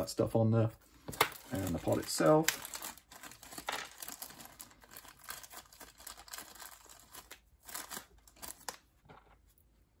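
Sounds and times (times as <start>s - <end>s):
plastic bag crinkling: 1.1s - 8.8s.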